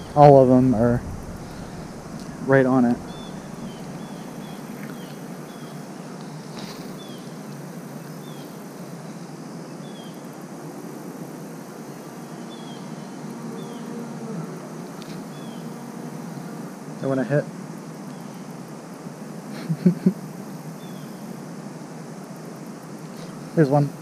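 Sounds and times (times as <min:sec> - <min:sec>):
high falling chirp: 0:00.0 - 0:05.8
low background noise: 0:00.0 - 0:24.0.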